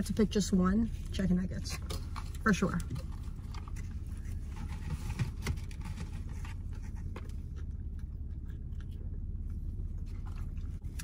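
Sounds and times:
person chewing: 6.7 - 11.0.

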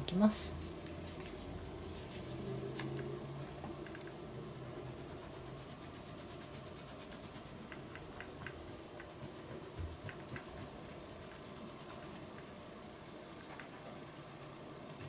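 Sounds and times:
eraser scratching on paper: 4.5 - 8.3, 9.2 - 12.2.

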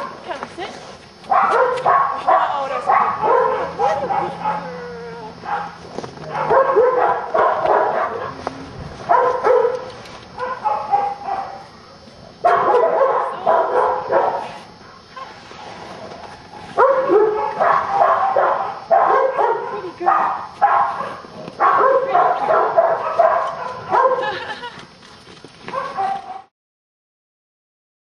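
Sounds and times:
dog barking: 1.3 - 4.7, 5.4 - 8.5, 9.1 - 11.8, 12.4 - 14.6, 16.8 - 24.4, 25.7 - 26.5.

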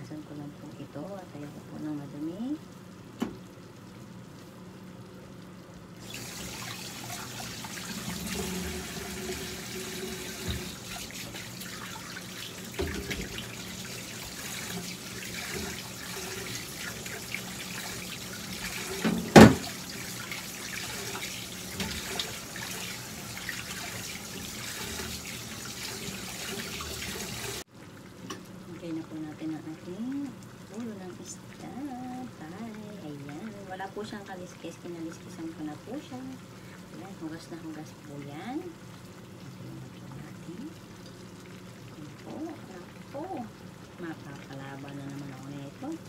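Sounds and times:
tap running into a sink: 3.2 - 3.4, 6.0 - 17.2, 17.8 - 27.6.

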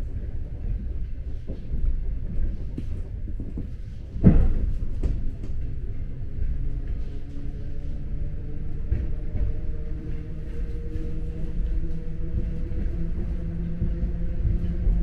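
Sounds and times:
train rumbling: 0.0 - 15.0.

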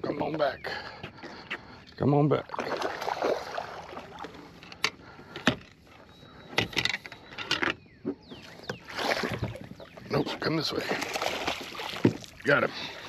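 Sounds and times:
fishing gear knocks and clicks: 4.2 - 7.8.

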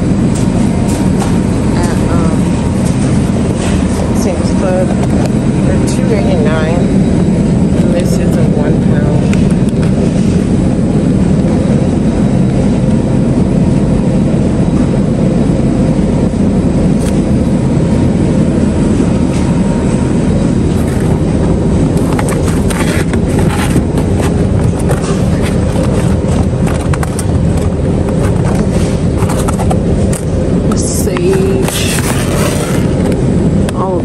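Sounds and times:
loud low rumbling noise: 0.0 - 34.0.

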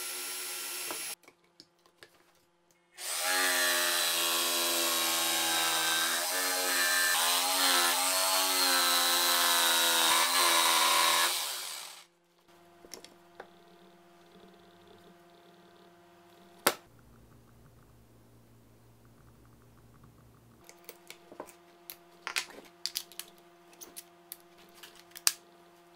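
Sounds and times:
jigsaw cutting plywood: 0.0 - 1.2, 3.0 - 12.1.

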